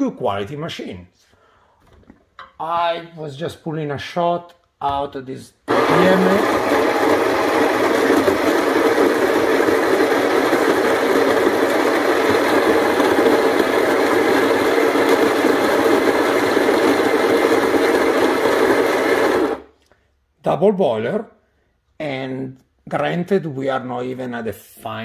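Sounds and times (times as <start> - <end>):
coffee grinder grinding beans: 5.7 - 19.7.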